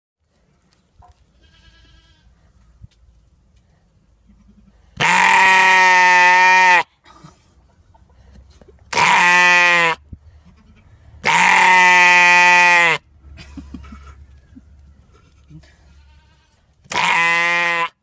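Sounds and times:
sheep bleating loudly: 1.4 - 2.2, 5.0 - 6.9, 8.9 - 10.0, 11.2 - 13.0, 15.9 - 18.0.

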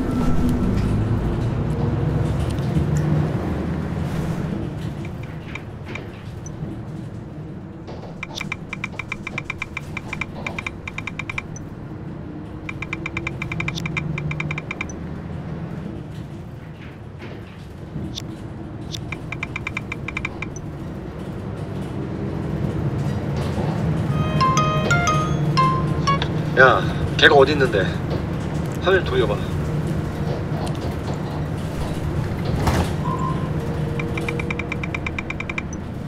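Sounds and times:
bus engine rumble: 0.0 - 36.0
road noise: 0.0 - 36.0
phone keyboard tap clicks: 8.2 - 11.6, 12.7 - 14.9, 18.9 - 20.6, 34.0 - 35.8.

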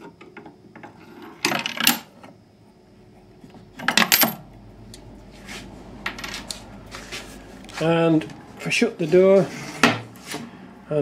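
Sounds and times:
coins clinking into a bin: 1.2 - 2.1, 3.8 - 4.4, 6.0 - 6.6.

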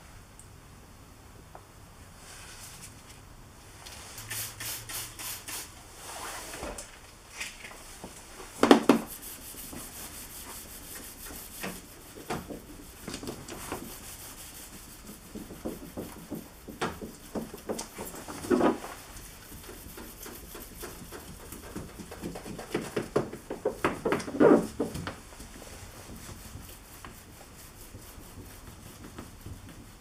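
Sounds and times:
hand rubbing car bodywork: 7.8 - 30.0.

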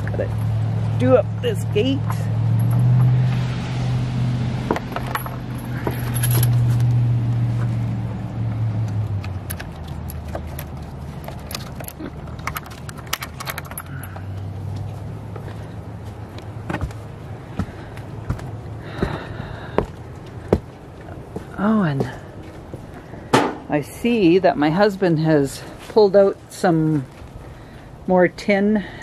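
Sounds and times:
steady low hum: 0.0 - 29.0
metal chains clinking: 2.5 - 3.2, 4.9 - 6.8, 9.6 - 14.4.

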